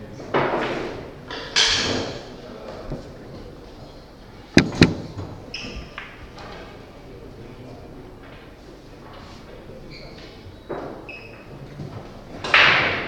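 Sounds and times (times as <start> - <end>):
pool balls clacking: 4.6 - 5.4.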